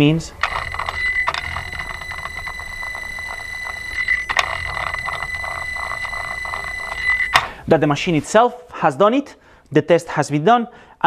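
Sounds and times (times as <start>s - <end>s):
high buzzer tone: 0.0s - 7.6s
rough pulsing buzz: 0.4s - 7.6s.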